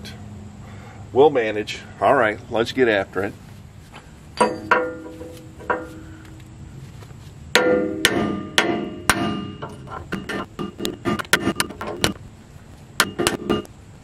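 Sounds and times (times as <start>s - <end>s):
hammer striking metal drift: 4.4s - 6.3s, 7.5s - 12.0s, 13.0s - 13.7s.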